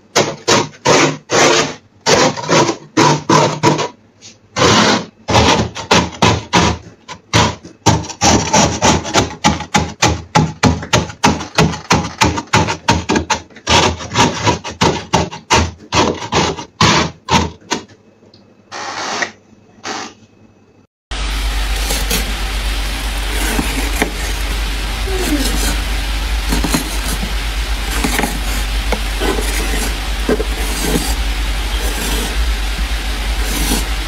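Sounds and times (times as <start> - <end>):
scraper rasping frost: 21.5 - 34.0.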